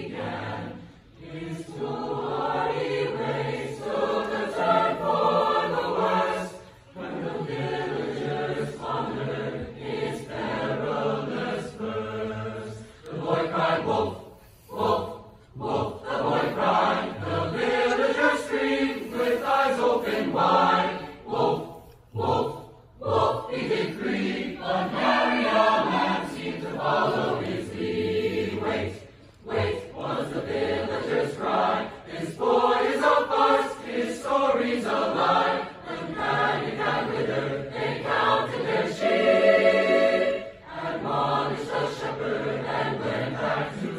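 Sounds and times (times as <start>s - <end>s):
choir singing: 0.0s - 43.9s
singers breathing: 14.2s - 15.5s.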